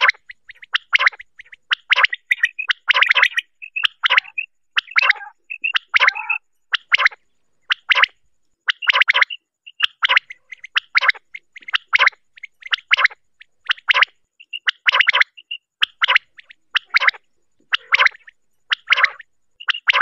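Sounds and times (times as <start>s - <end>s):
quail calls: 0.0s - 20.0s.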